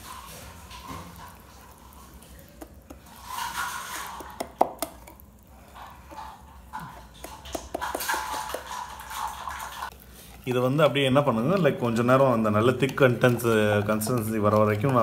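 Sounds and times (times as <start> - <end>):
whisk swishing batter: 0.0 - 15.0
whisk clicking against bowl: 11.5 - 15.0.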